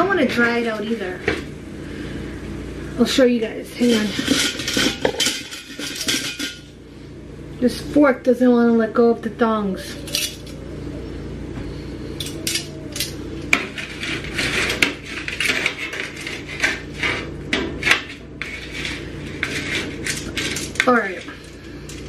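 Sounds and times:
metal utensils clinking on cookware: 3.8 - 6.7, 10.1 - 10.6.

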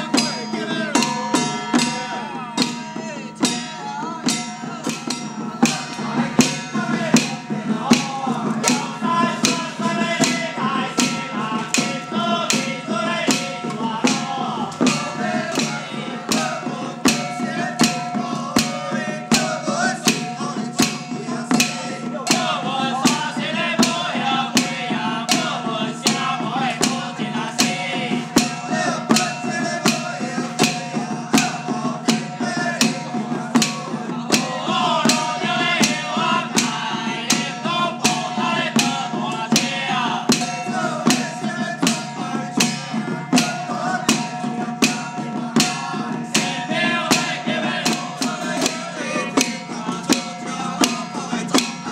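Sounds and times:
hand drums struck with sticks: 0.0 - 51.9.

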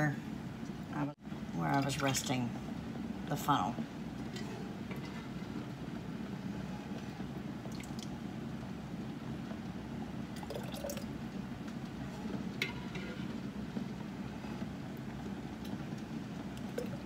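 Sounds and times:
water boiling in pot: 0.0 - 17.0
sauce ladled and scraped from pot: 12.6 - 13.5.

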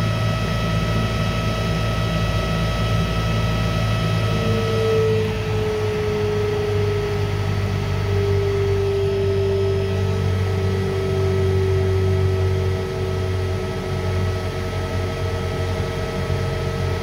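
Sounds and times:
electric motor humming and whining: 0.0 - 17.0.

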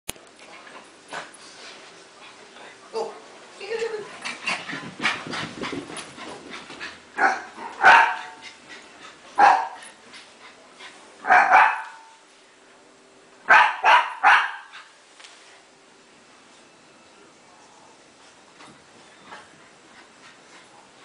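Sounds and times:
small dog barking: 7.2 - 8.4, 9.4 - 9.8, 11.2 - 12.2, 13.5 - 14.7.

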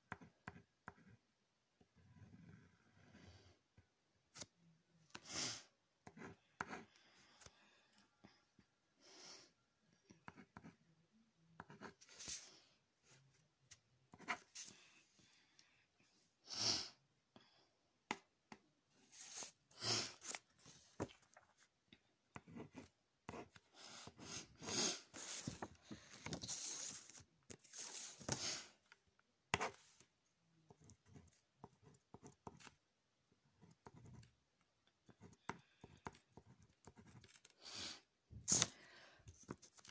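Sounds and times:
pencil scratching on paper: 0.1 - 1.2, 6.0 - 7.0, 10.2 - 10.8, 11.6 - 12.5, 14.1 - 14.8, 22.3 - 28.4, 29.5 - 30.0, 30.7 - 32.8, 33.5 - 34.4, 35.0 - 37.5.

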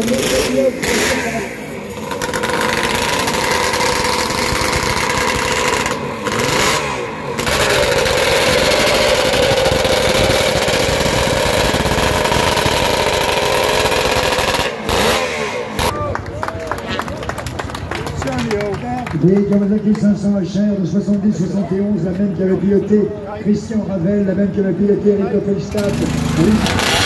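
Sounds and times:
racing engine revving and idling: 0.0 - 16.1, 24.3 - 27.0.

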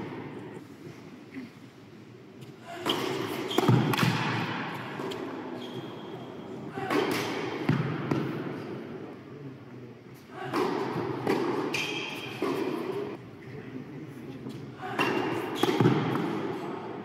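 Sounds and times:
tennis balls bouncing: 2.4 - 5.3, 6.8 - 8.5, 10.5 - 13.1, 15.0 - 16.4
tennis balls hit by rackets: 2.4 - 5.5, 6.7 - 8.8, 10.4 - 13.2, 14.8 - 16.7.

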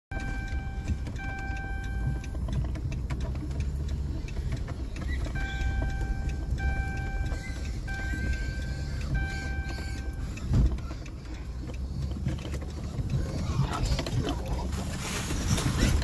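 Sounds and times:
engine and road rumble: 0.1 - 16.0
steady electronic tone: 5.3 - 10.8.

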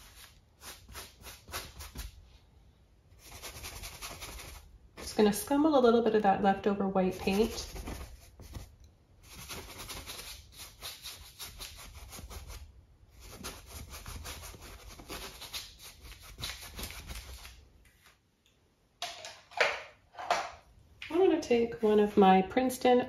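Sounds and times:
paintbrush scrubbing on canvas: 0.0 - 2.4, 3.2 - 5.3, 7.1 - 17.6.

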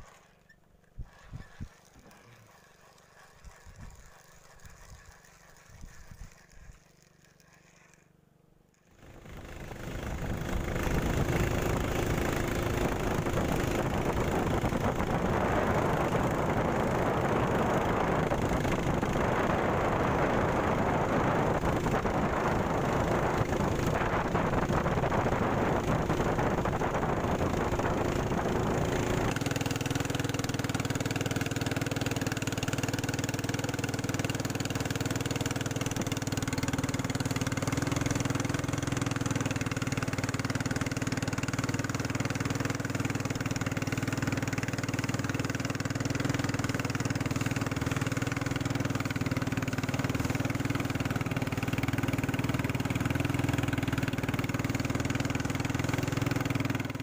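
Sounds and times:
boat engine running: 0.0 - 7.8, 9.0 - 57.0
wind noise on microphone: 3.5 - 4.0, 10.0 - 29.4.

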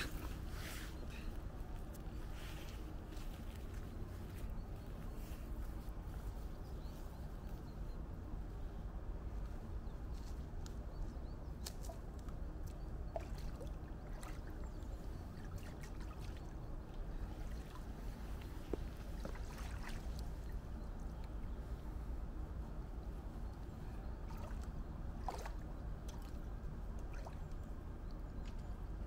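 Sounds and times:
water splashing and sloshing: 0.0 - 7.1, 11.5 - 21.8, 23.7 - 29.0.

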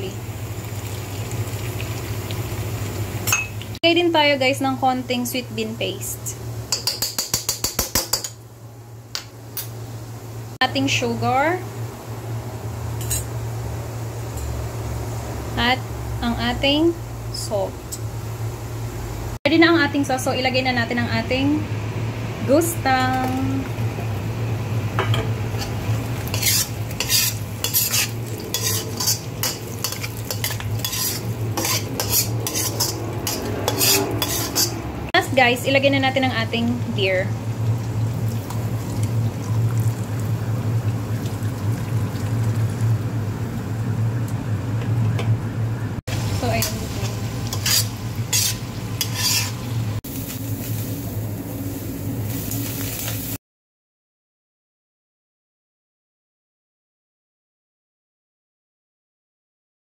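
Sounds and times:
sauce sizzling: 0.0 - 3.8, 23.5 - 44.5, 46.1 - 53.4
metal spatula scraping wok: 25.5 - 34.9, 46.2 - 50.0.

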